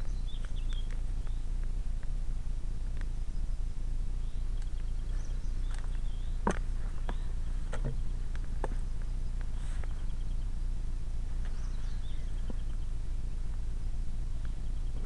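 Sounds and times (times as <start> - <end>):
faint bird chirps: 0.0 - 1.6, 3.2 - 15.0
bike pushed through grass: 4.2 - 15.0.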